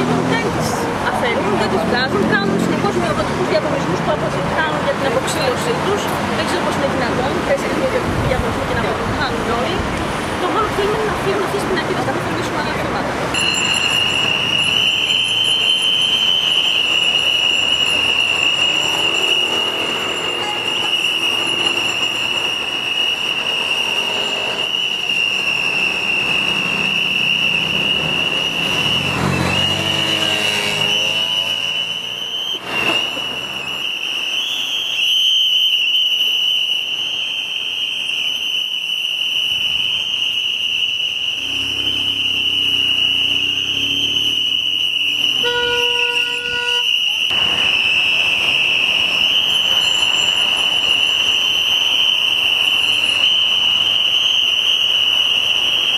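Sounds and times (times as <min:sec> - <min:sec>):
road traffic: 0:00.0 - 0:55.9
high-pitched whistling tone: 0:13.3 - 0:55.9
vehicle passing: 0:26.3 - 0:33.6, 0:41.4 - 0:45.4.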